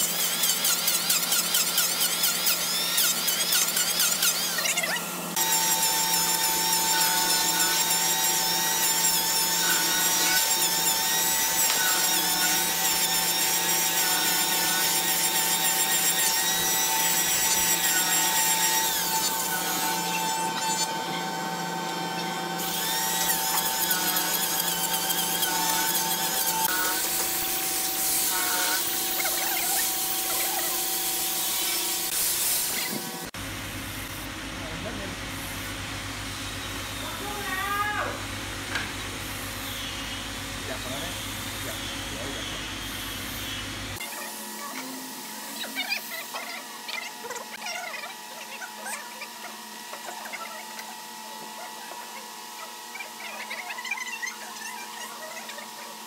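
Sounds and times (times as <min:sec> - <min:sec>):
electric hand planer shaving wood: 0:00.0 - 0:33.4
steady motor tone: 0:01.8 - 0:32.2.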